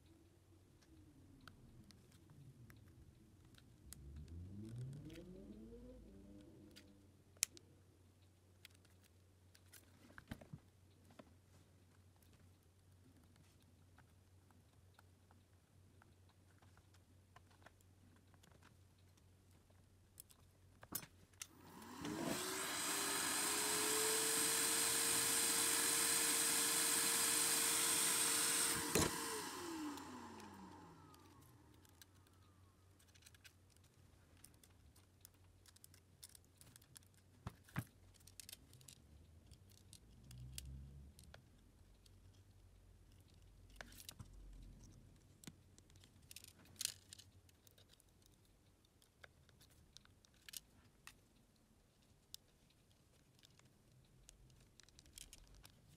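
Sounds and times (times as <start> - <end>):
small tools clicking: 20.1 - 44.3, 52.2 - 55.9
electric motor whirring: 21.6 - 31.6.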